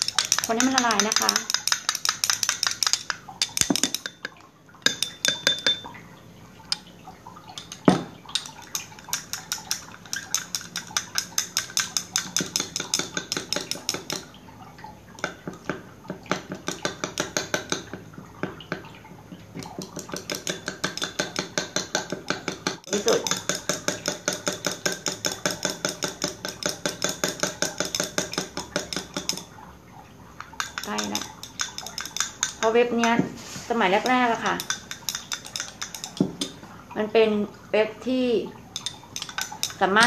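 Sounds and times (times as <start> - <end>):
utensil clicking against container: 0.0 - 5.8, 7.6 - 14.3, 19.6 - 29.5, 30.4 - 33.2, 34.0 - 36.6, 38.8 - 39.9.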